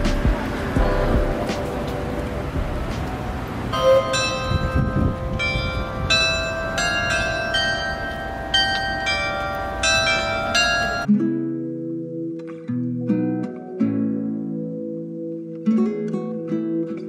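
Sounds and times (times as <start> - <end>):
low street rumble: 0.0 - 11.1
clock tower bells chiming: 3.7 - 11.1.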